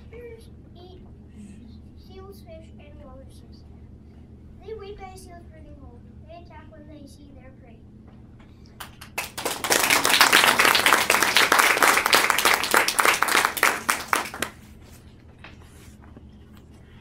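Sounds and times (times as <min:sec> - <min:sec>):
children clapping: 0:08.8 - 0:14.6.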